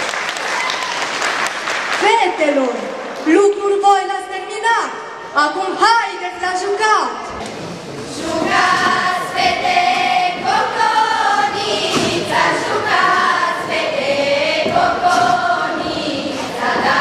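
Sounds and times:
girls singing in unison: 0:08.0 - 0:17.0.

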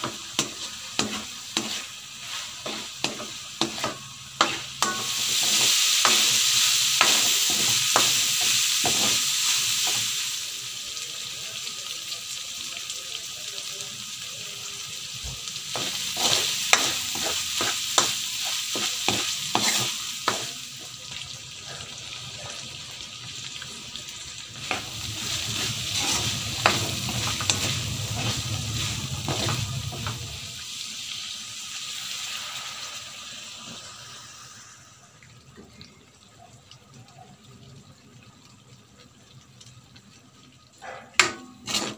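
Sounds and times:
meat sizzling in a wok: 0:00.0 - 0:35.2, 0:39.4 - 0:41.9
wooden spatula scraping a pan: 0:00.4 - 0:05.6, 0:24.6 - 0:30.2, 0:41.6 - 0:41.9.

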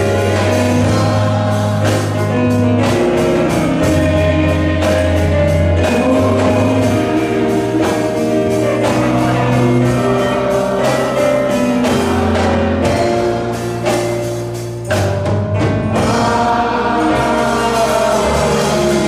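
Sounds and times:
men's choir singing a hymn: 0:00.0 - 0:14.6, 0:15.8 - 0:19.0
steady drum beat: 0:00.0 - 0:19.0
sustained bass notes: 0:00.0 - 0:19.0.

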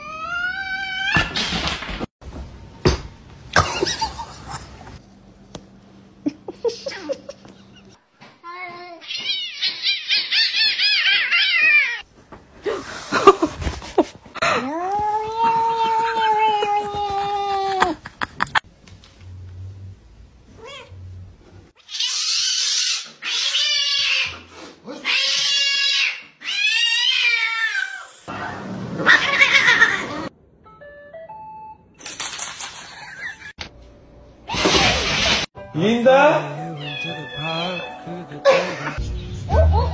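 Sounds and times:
cat high-pitched cries: 0:00.0 - 0:01.2, 0:09.0 - 0:12.0, 0:21.8 - 0:24.4, 0:25.0 - 0:28.1, 0:36.8 - 0:38.0
cat yowling: 0:09.0 - 0:12.0, 0:36.8 - 0:38.0
cat meowing: 0:36.8 - 0:38.0.

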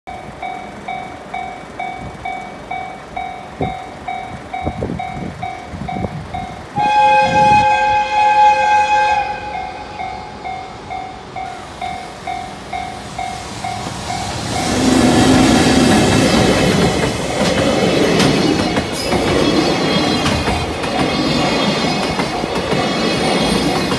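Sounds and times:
train horn blast: 0:06.8 - 0:10.4.

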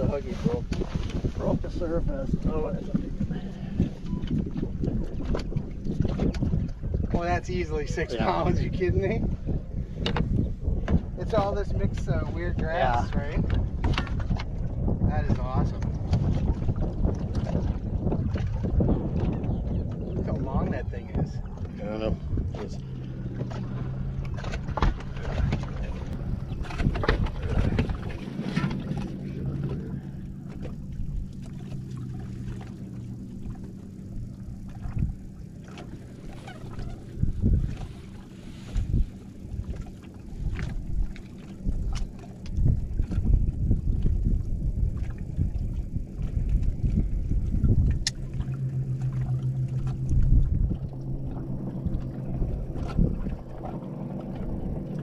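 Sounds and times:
boat motor humming: 0:00.0 - 0:55.0
wind on microphone: 0:00.0 - 0:55.0.

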